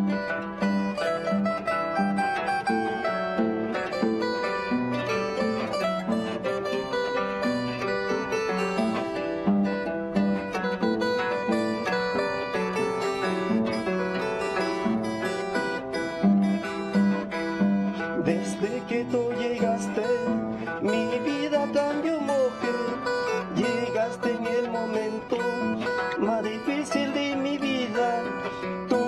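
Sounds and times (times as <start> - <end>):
man singing: 17.4 - 29.0.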